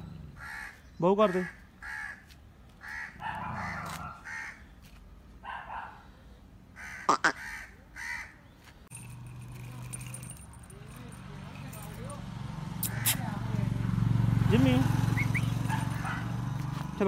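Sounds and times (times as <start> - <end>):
crows cawing: 0.4 - 4.7, 6.7 - 8.4.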